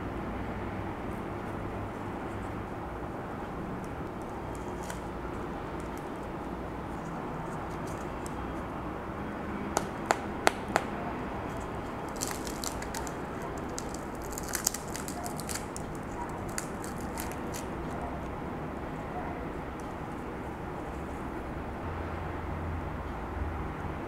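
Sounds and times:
steady background noise: 0.0s - 24.0s
fried chicken skin crackling: 11.6s - 18.0s.

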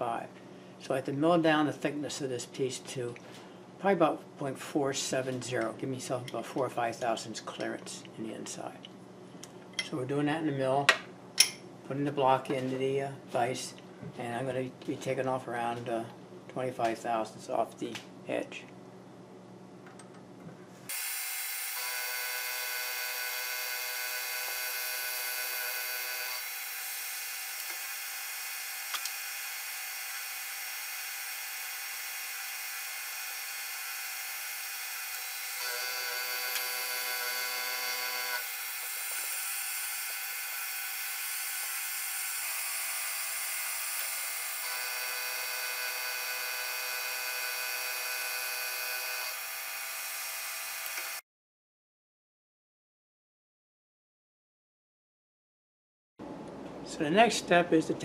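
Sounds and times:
end mill cutting brass: 20.9s - 51.2s
milling machine motor whine: 20.9s - 51.2s.

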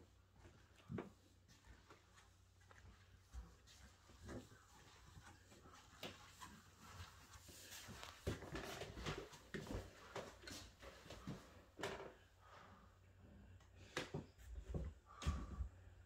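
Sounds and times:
footsteps in socks on hard floor: 0.3s - 12.1s, 14.1s - 15.7s.

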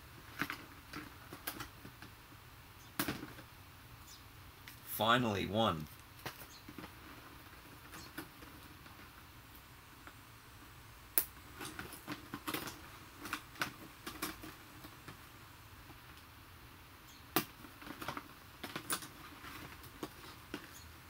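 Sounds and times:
plastic packaging clicking and crinkling: 11.6s - 15.2s, 17.4s - 20.8s.

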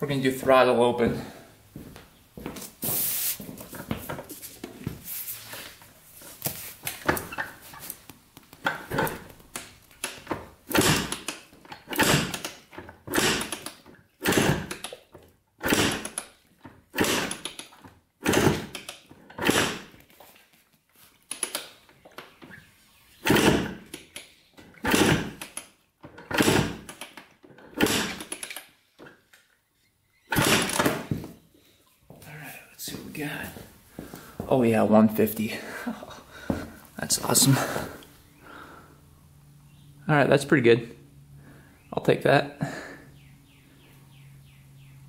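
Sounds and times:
motorcycle engine being kicked over: 8.6s - 9.3s, 10.0s - 20.0s, 23.2s - 29.2s, 30.3s - 31.4s.

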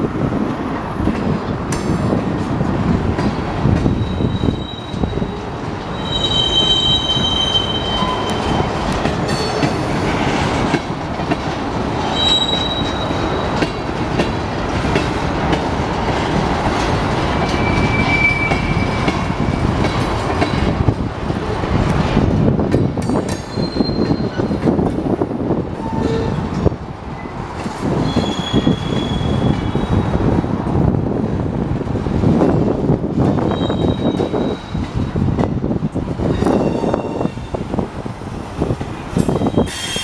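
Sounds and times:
train wheels rumbling on rails: 0.0s - 40.0s
high-pitched wheel squeals: 3.9s - 8.6s, 12.1s - 13.3s, 17.4s - 19.1s, 23.5s - 24.5s, 28.0s - 30.0s, 33.4s - 34.8s, 36.4s - 37.6s, 39.2s - 40.0s.

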